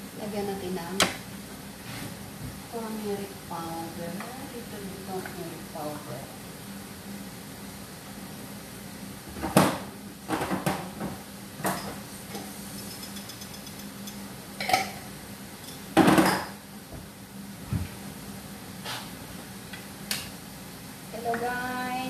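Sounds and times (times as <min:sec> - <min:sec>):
steady low hum: 0:00.0 - 0:22.0
kitchenware clattering: 0:14.6 - 0:15.0, 0:15.6 - 0:16.6.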